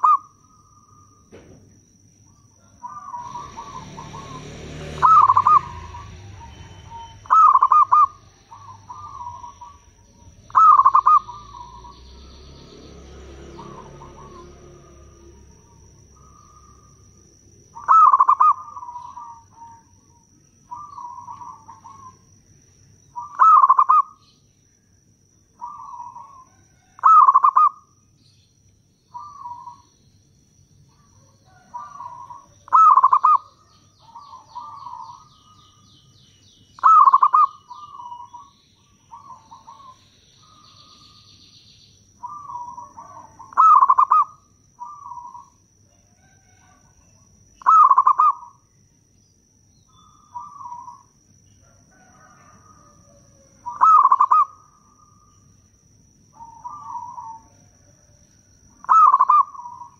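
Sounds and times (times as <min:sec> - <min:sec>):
dove cooing: 0:00.0 - 0:01.5, 0:02.6 - 0:22.4, 0:23.1 - 0:24.3, 0:25.6 - 0:27.9, 0:29.1 - 0:29.9, 0:30.9 - 0:35.8, 0:36.8 - 0:41.3, 0:42.2 - 0:48.6, 0:50.0 - 0:51.1, 0:51.7 - 0:55.3, 0:56.4 - 0:58.2, 0:58.8 - 0:59.9.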